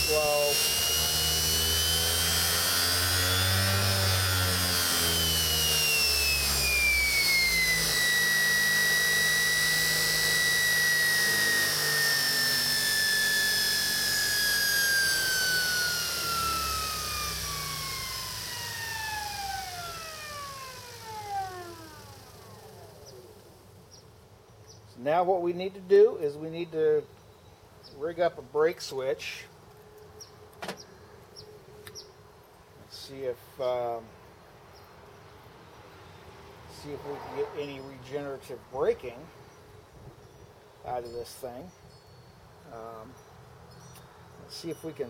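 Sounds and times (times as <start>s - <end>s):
electric motor whine: 0.0s - 23.8s.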